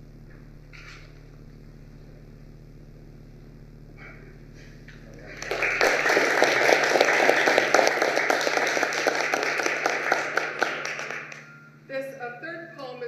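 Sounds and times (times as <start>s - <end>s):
faint low hum: 0.0s - 13.0s
audience applause: 5.2s - 11.5s.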